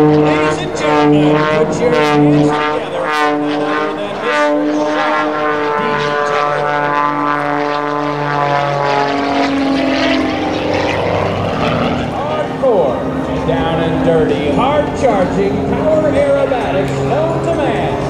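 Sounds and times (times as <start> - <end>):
propeller plane engine buzzing: 0.0 - 18.0.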